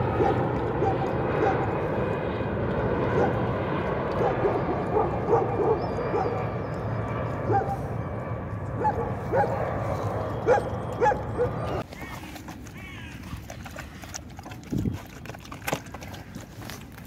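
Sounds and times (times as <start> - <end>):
dogs yelping and whining: 4.2 - 6.8, 8.8 - 13.1.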